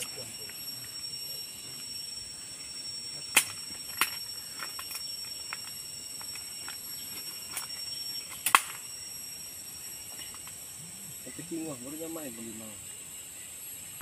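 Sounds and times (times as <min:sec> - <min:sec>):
insects droning: 0:00.0 - 0:14.0
branches snapping: 0:03.3 - 0:05.7, 0:06.6 - 0:08.8.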